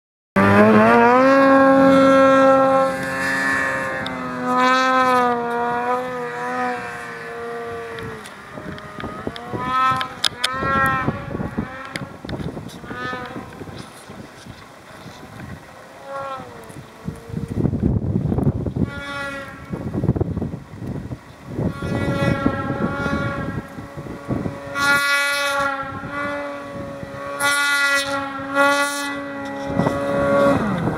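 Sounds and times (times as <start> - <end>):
snowmobile engine revving: 0.4 - 30.9.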